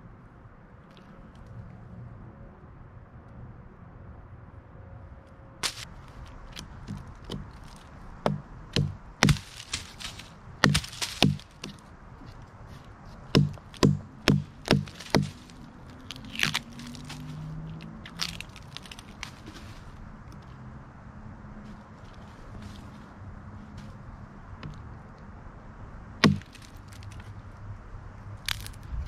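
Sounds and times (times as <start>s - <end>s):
baton knocking on hatchet: 8.3s - 11.8s, 13.4s - 15.4s, 26.2s - 26.6s.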